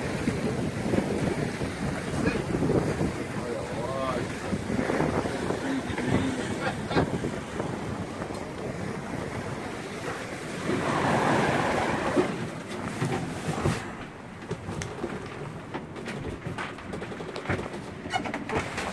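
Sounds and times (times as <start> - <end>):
sea water rushing along hull: 0.0 - 18.9
wind buffeting microphone: 0.0 - 18.9.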